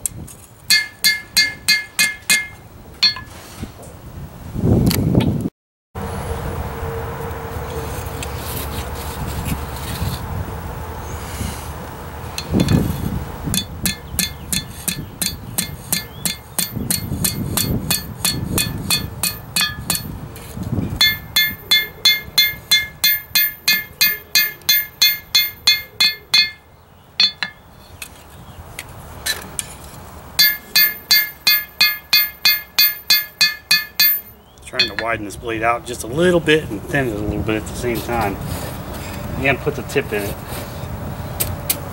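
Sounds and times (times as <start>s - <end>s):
hammer blows on anvil: 0.7s - 3.3s, 13.5s - 20.2s, 21.0s - 27.6s, 30.4s - 35.3s.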